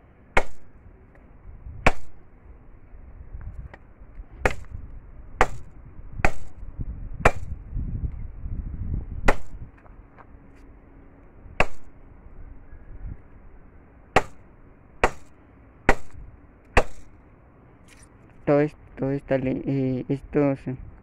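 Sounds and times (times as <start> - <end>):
machete chopping wood: 0.3 - 0.7, 1.8 - 2.2, 4.4 - 4.8, 5.4 - 6.6, 7.2 - 7.6, 9.2 - 9.6, 11.6 - 11.9, 14.2 - 14.4, 15.0 - 17.1.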